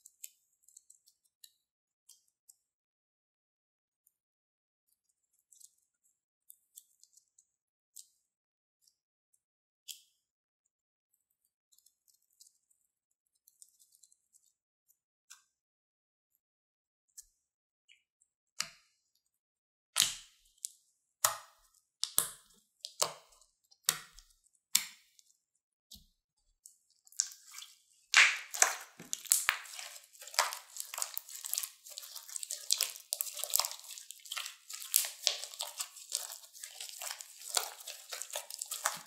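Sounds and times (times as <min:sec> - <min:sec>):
slime squishing and popping: 0:27.1 - 0:39.0.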